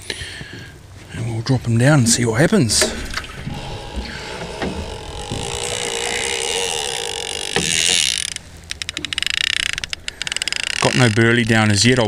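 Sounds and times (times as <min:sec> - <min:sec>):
fishing reel spool whirring: 0:03.5 - 0:11.5.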